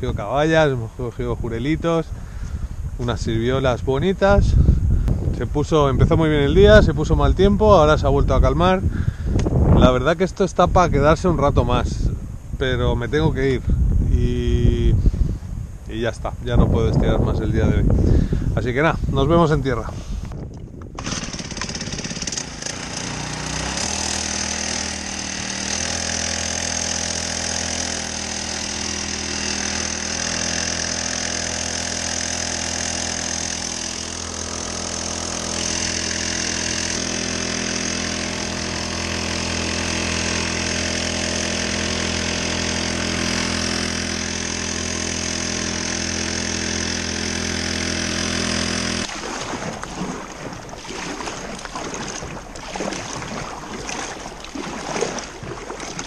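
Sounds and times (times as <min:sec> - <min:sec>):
small outboard engine running: 0:20.0 - 0:56.0.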